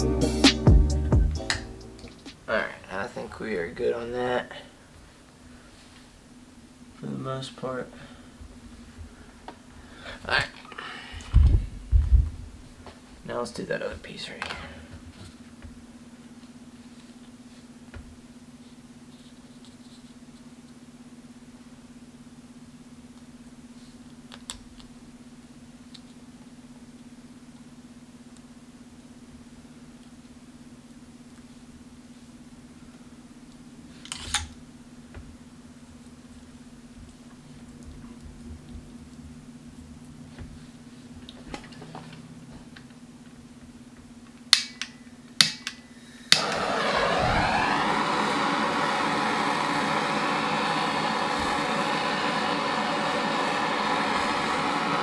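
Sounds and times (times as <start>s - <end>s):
steady low hum: 24.9s - 55.0s
gas torch igniter clicks: 44.5s - 48.6s
gas torch hissing: 45.8s - 55.0s.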